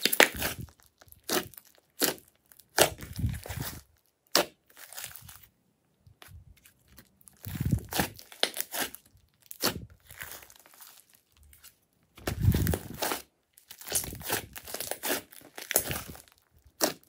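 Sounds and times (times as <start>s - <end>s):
slime squelching and crackling: 0.0s - 5.5s, 6.1s - 17.0s.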